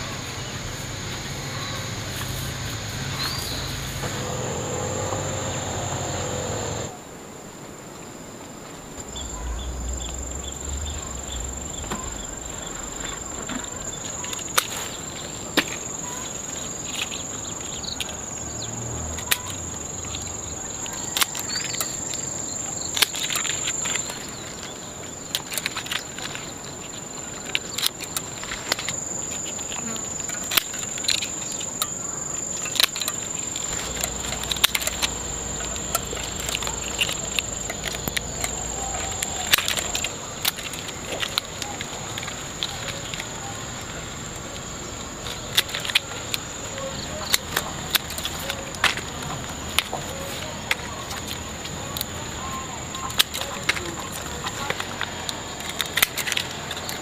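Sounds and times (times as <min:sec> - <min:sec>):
high-pitched insect drone: 0:09.1 - 0:47.4.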